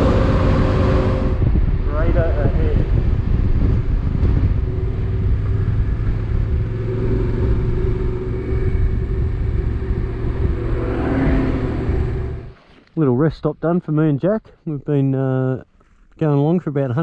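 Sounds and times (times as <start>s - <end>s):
second engine: 0.0s - 12.7s
motorcycle engine cruising: 0.0s - 12.8s
tyre and wind rumble: 0.0s - 13.3s.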